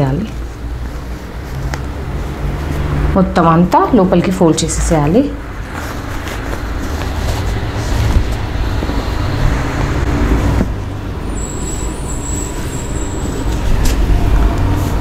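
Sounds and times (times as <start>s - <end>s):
fabric being folded by hand: 0.0s - 11.7s.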